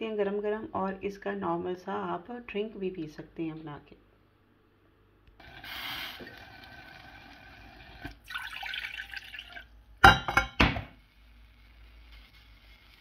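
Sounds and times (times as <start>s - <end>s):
water pouring into a metal saucepan: 5.4s - 9.7s
glass jug clinking and knocking: 8.3s - 10.9s.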